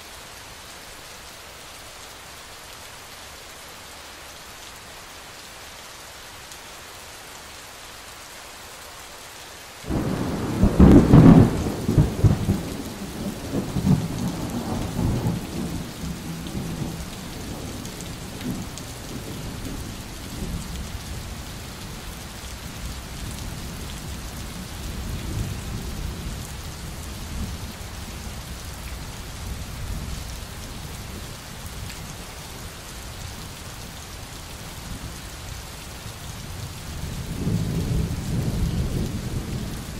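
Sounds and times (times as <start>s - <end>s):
steady rain: 0.0s - 39.9s
thunder clap and rumble: 9.9s - 19.6s.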